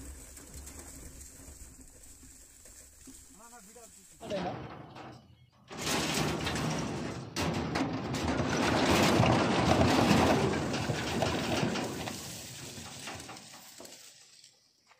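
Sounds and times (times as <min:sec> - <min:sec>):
wire cage and truck bed rattling: 0:04.2 - 0:14.0.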